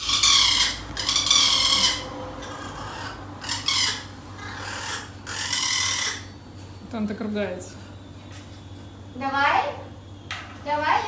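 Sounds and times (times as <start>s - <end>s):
parrot screeching: 0.0s - 6.4s.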